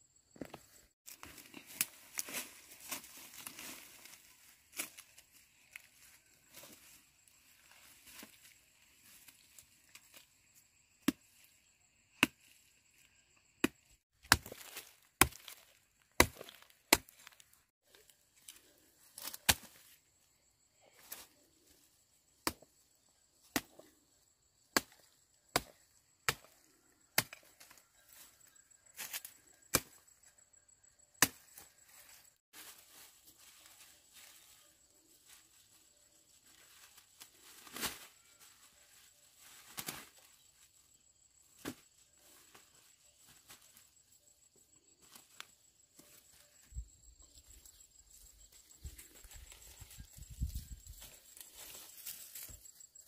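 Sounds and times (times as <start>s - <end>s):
machete chopping wood: 13.6s - 15.6s.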